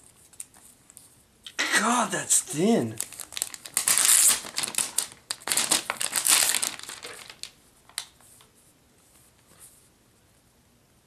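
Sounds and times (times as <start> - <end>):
plastic sleeve crinkling: 2.5 - 8.2.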